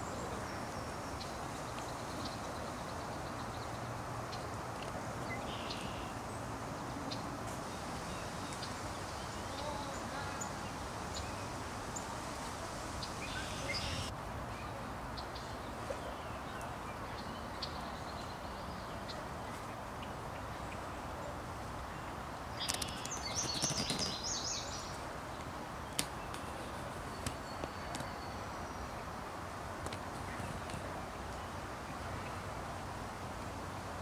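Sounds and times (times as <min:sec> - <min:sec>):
background hiss: 0:00.0 - 0:34.0
birds chirping: 0:05.2 - 0:14.1, 0:22.6 - 0:29.1.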